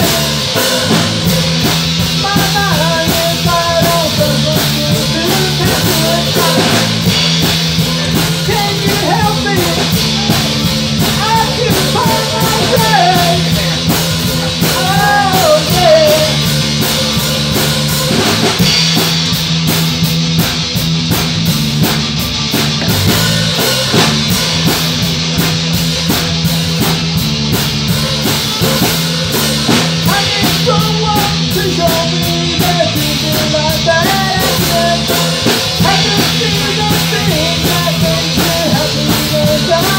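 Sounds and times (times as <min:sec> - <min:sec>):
male lead vocal: 0:00.0 - 0:18.3, 0:29.8 - 0:39.9
drum kit: 0:00.0 - 0:39.9
electric guitars: 0:00.0 - 0:39.9.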